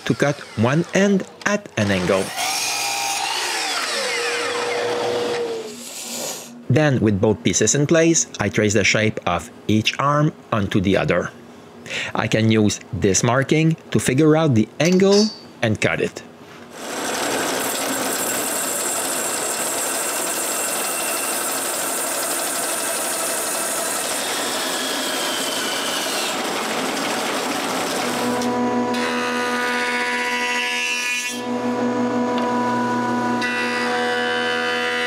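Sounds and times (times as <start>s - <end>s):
jointer-planer humming: 0.0s - 5.8s, 16.8s - 30.4s
bandsaw cutting wood: 0.0s - 6.5s, 16.8s - 35.0s.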